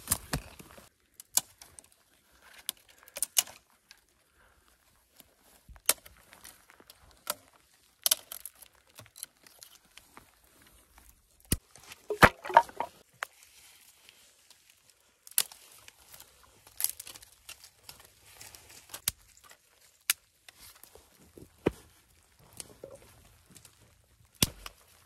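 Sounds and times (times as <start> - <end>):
stones knocked together: 12.1 - 12.9
dry twigs snapping: 16.6 - 20.9.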